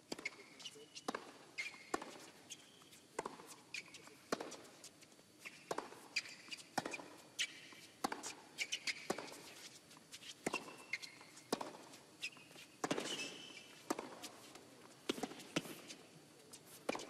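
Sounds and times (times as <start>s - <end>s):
shoes squeaking on court: 0.1s - 17.0s.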